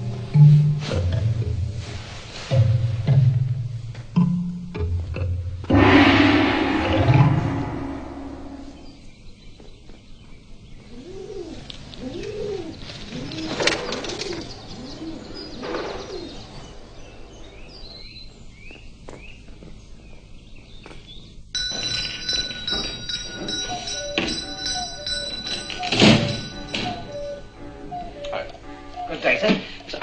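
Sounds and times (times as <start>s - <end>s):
music with sustained tones: 5.7s - 9.0s, 23.8s - 30.0s
pigeons cooing: 10.8s - 16.8s.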